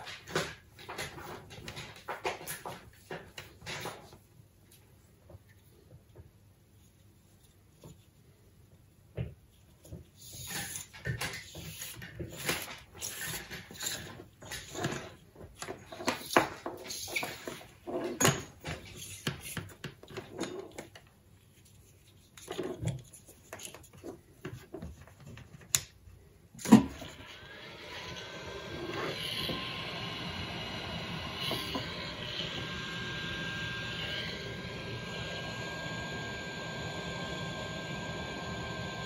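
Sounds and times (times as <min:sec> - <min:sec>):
heat gun blowing hiss: 0:27.3 - 0:37.7.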